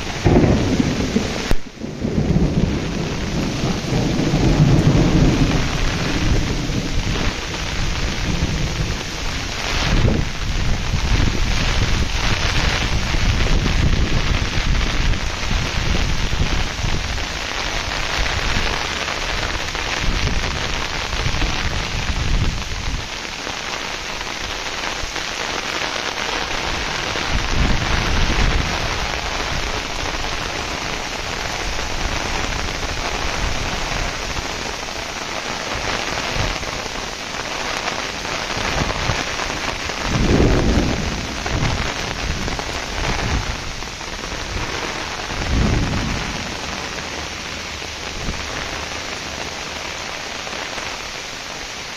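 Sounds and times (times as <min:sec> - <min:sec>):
heavy rain pouring: 0:00.0 - 0:51.9
low rumbles: 0:39.8 - 0:49.2.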